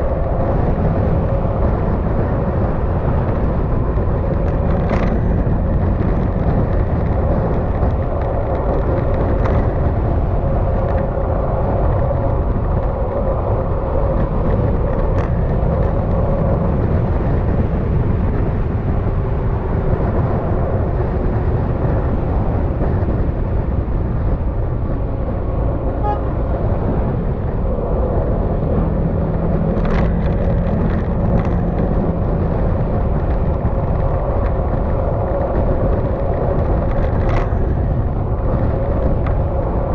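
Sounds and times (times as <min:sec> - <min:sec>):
wind and road noise: 0:00.0 - 0:39.9
low steady note: 0:25.2 - 0:26.9.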